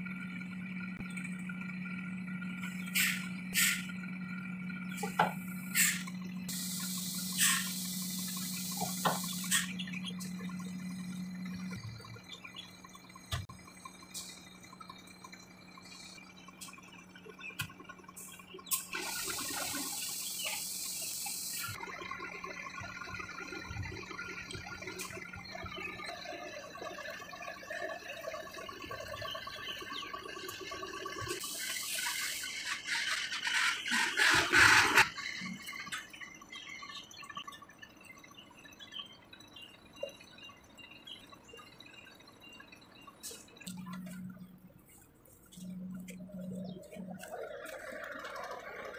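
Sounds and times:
compressed air hissing: 5.7s - 9.7s.

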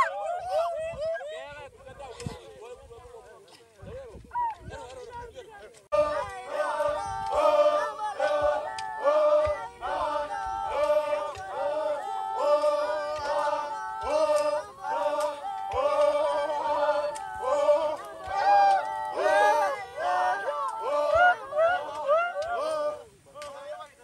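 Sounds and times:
men singing a chant together: 5.9s - 24.0s.

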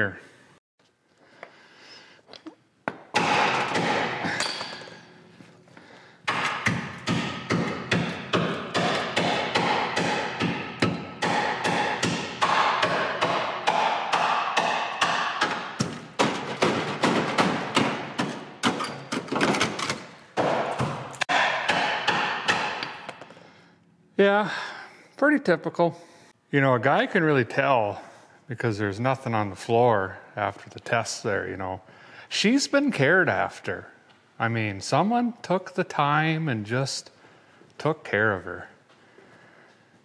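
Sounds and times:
hammer striking steel frame: 2.9s - 5.1s, 6.3s - 23.3s.

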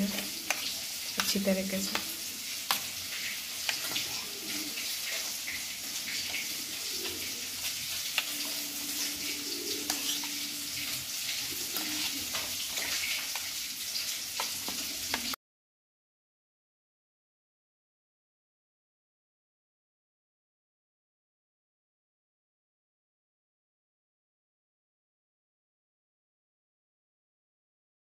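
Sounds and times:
fish frying in oil: 0.0s - 15.4s
spoon scraping a steel plate: 8.1s - 13.3s.

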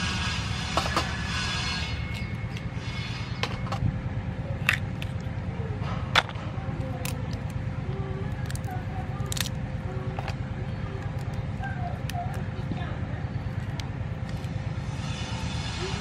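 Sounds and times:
low background rumble: 0.0s - 16.0s
crab shells cracking: 6.9s - 7.6s, 8.3s - 10.4s, 11.0s - 12.5s.

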